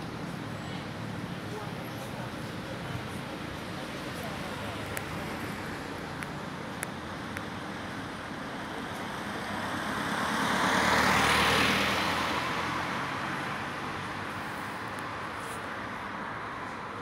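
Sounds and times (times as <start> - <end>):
road vehicle passing by: 8.8 - 17.0.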